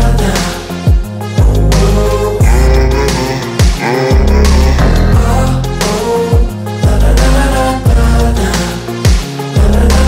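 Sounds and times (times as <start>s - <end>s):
hip-hop pop music: 0.0s - 10.0s
person singing: 0.0s - 10.0s
deep bass kicks: 3.6s - 5.8s.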